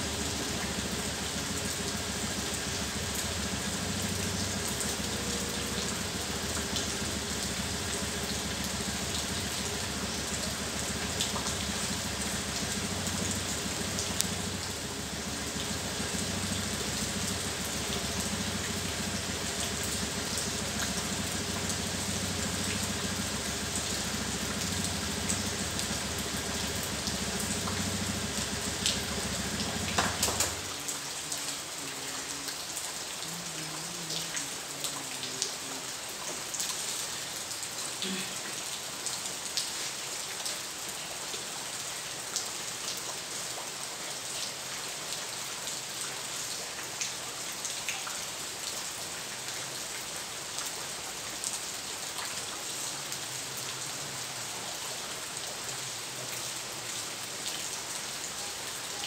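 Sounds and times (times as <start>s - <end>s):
scooter engine idling: 0.0s - 30.7s
constant hiss: 0.0s - 59.0s.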